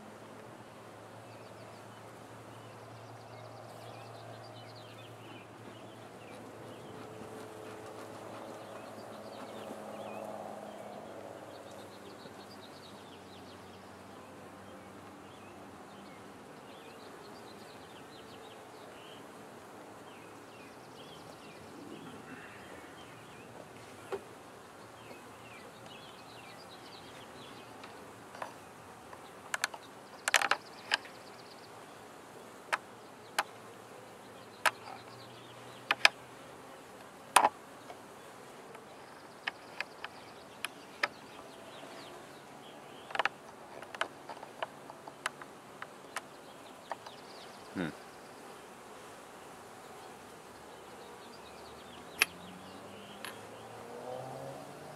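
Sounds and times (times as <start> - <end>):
faint birds chirping: 0.0 - 54.9
honeybees buzzing: 0.0 - 54.9
hive tool prying wooden frames: 37.0 - 37.6.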